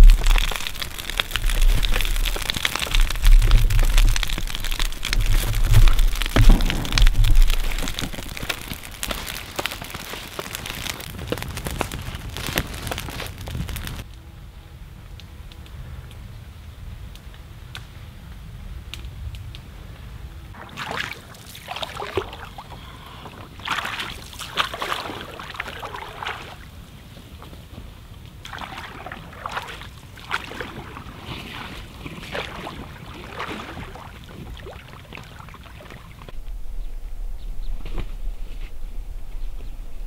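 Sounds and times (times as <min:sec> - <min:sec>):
wind rumble on microphone: 0:00.0 - 0:20.6, 0:36.2 - 0:40.0
lake waves lapping at shoreline: 0:20.6 - 0:26.8, 0:28.4 - 0:36.3.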